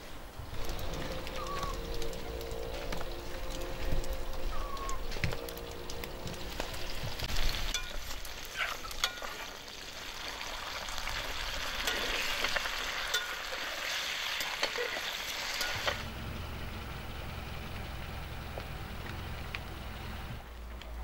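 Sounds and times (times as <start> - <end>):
potatoes sizzling in oil: 0.0 - 16.1.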